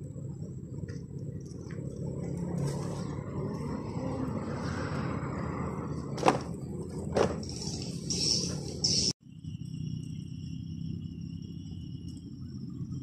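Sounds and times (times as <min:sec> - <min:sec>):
crickets chirring: 0:00.0 - 0:13.0
outdoor background rumble: 0:00.0 - 0:13.0.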